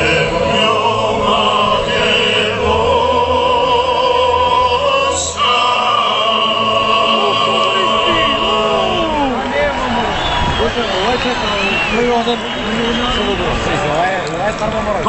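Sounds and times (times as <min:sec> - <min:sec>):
music with singing over loudspeakers: 0:00.0 - 0:09.4.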